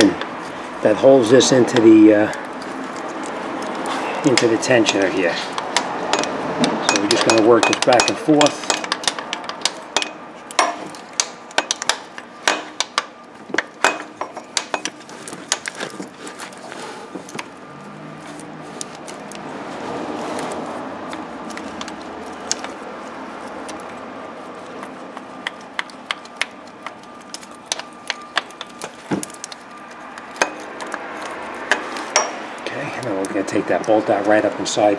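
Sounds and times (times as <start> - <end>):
metallic clicks and clinks: 1.4 - 16.1.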